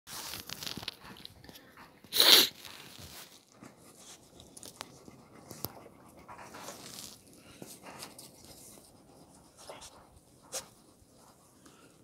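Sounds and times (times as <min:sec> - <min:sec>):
puppies scratching in dirt: 0:00.1 - 0:11.6.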